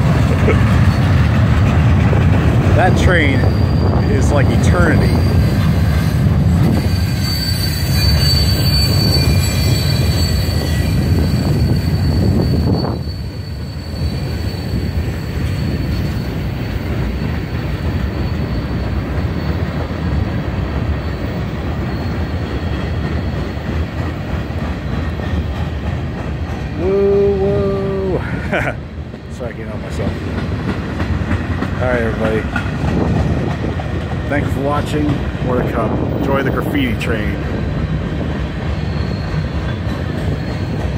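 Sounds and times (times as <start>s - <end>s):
train wheels rumbling on rail: 0.0s - 40.9s
high wheel squeal: 2.8s - 25.6s, 36.3s - 40.9s.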